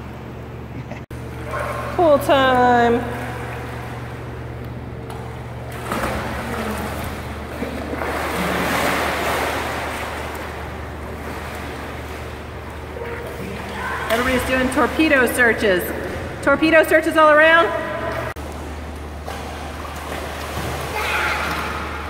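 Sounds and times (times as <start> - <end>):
steady low hum: 0.0 - 22.0
water splashing in a pool: 1.1 - 22.0.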